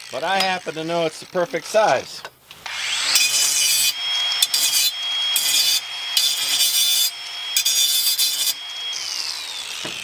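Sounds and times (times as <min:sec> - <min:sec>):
rough bursts of woodworking: 0:00.0 - 0:10.0
power tool motor whine: 0:02.6 - 0:10.0.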